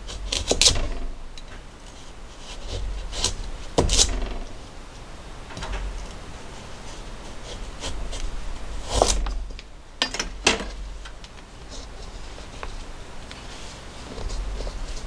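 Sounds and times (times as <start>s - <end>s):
knife chopping on plastic board: 3.1s - 4.4s.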